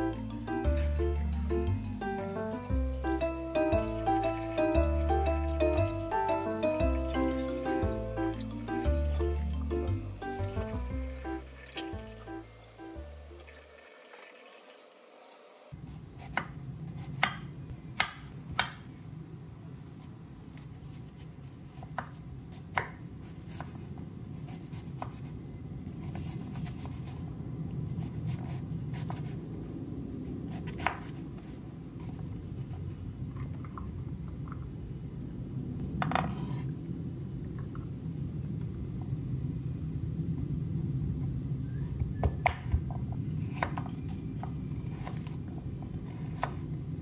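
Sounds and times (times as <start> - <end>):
low hum: 0.0 - 13.7
knife chopping on wooden board: 17.1 - 17.4.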